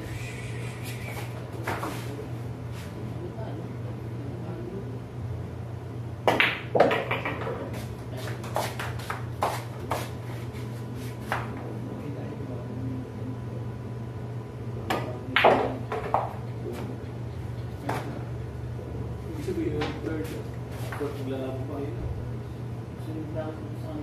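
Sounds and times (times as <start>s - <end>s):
low hum: 0.0s - 5.8s
cue striking ball: 6.3s - 7.6s, 14.9s - 16.4s
pool balls clicking: 6.3s - 7.7s.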